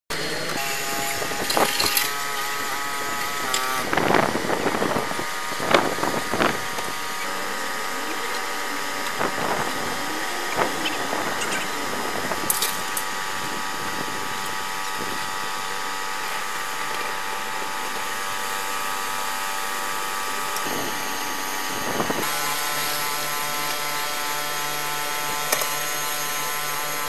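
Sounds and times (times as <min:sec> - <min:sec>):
truck engine whining: 0:00.1 - 0:27.0.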